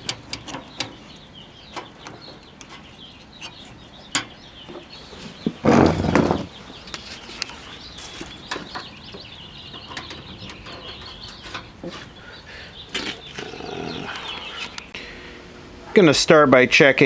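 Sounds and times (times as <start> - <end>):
sharp clicks and knocks: 0.0 - 7.6, 8.2 - 12.1
small birds chirping: 0.0 - 15.1.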